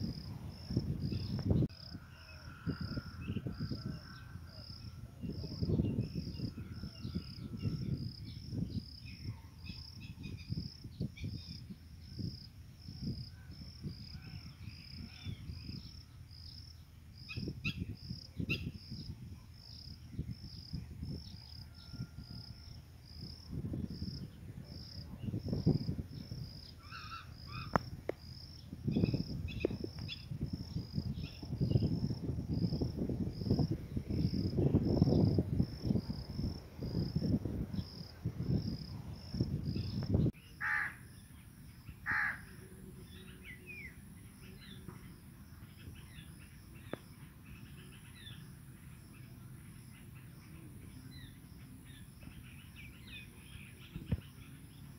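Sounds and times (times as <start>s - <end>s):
wind buffeting microphone: 0.0s - 40.4s, 43.2s - 54.8s
insect chirping: 0.0s - 54.9s
bird calls: 26.5s - 27.8s.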